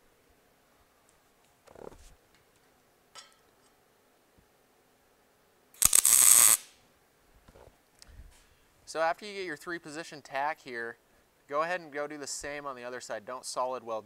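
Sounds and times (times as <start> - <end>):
light metal clink: 3.2 - 3.8
welding arc crackling and buzzing: 5.8 - 6.8.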